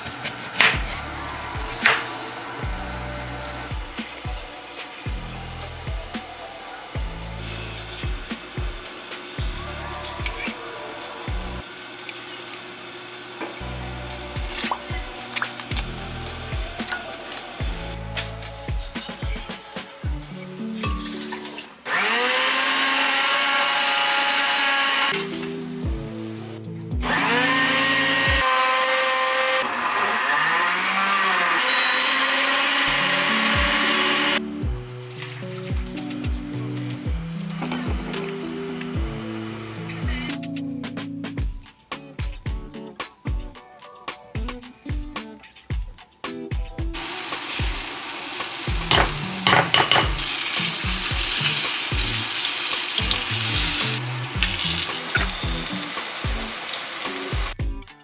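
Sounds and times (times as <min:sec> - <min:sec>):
soft background music with beat: 0:00.0 - 0:11.6, 0:13.6 - 0:21.6, 0:25.1 - 0:28.4, 0:33.2 - 0:47.9, 0:48.7 - 0:58.0
blender motor whining: 0:21.8 - 0:25.2, 0:27.0 - 0:34.4, 0:47.0 - 0:49.4
batter sizzling in oil: 0:47.0 - 0:57.6.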